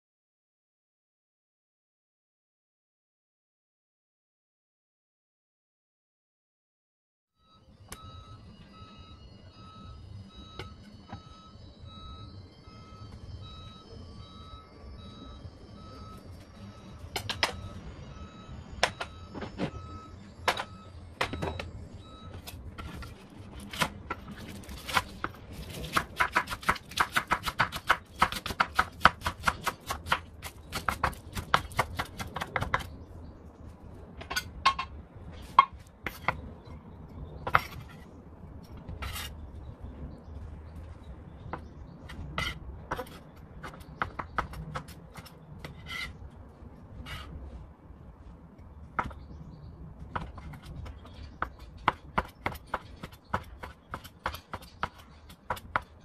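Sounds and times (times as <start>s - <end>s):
knife chopping on wooden board: 23.6s - 32.9s, 41.5s - 46.1s, 50.2s - 56.0s.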